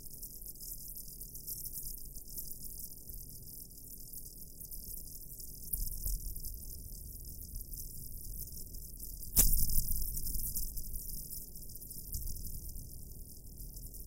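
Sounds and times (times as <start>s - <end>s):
crackling high hiss: 8.4s - 14.0s.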